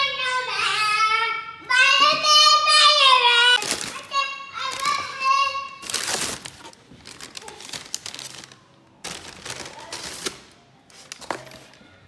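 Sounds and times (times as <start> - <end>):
paper bag rustling: 3.6 - 11.8.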